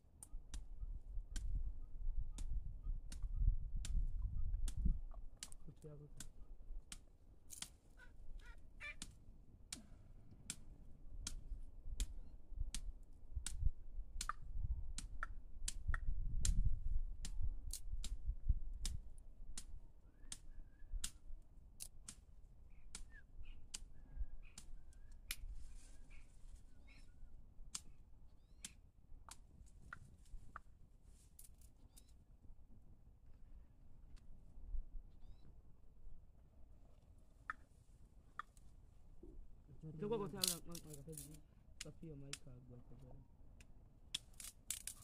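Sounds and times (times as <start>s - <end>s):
wind rumble on microphone: 0.4s - 5.4s, 11.1s - 21.4s
sharp clicks and snaps: 2.4s - 7.8s, 9.0s - 11.4s, 12.0s - 18.2s, 18.8s - 21.2s, 21.8s - 22.3s, 22.9s - 25.5s, 28.6s - 30.7s, 40.4s - 42.5s, 43.6s - 45.0s.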